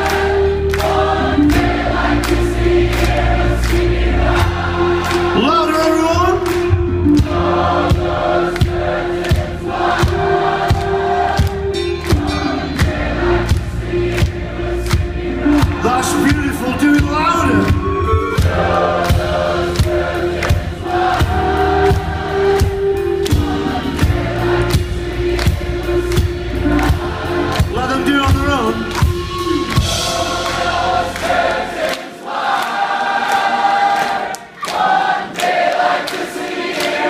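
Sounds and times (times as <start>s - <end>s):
crowd singing along: 0.0s - 37.0s
live rock band playing: 4.4s - 31.4s.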